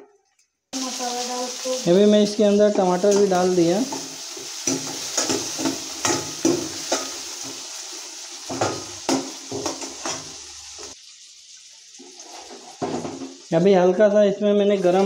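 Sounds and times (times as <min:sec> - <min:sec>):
food sizzling in oil: 0:00.8 - 0:15.0
metal spoon scraping a pan: 0:02.9 - 0:07.6, 0:12.0 - 0:13.4.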